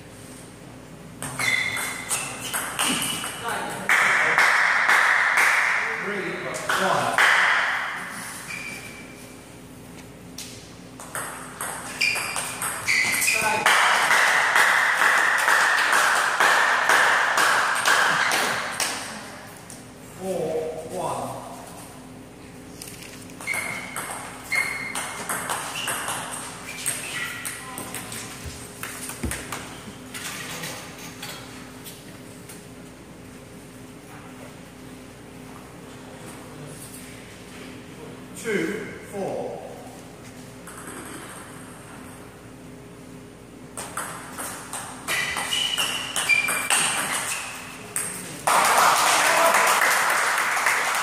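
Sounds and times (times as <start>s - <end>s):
shoes squeaking on floor: 1.2s - 3.4s, 8.2s - 9.4s, 11.6s - 13.6s, 23.3s - 30.7s, 45.1s - 48.0s
table tennis ball hits and bounces: 1.2s - 5.9s, 10.4s - 19.1s, 23.4s - 30.5s, 40.6s - 42.0s, 43.7s - 48.5s
applause: 13.6s - 18.2s, 48.4s - 51.0s.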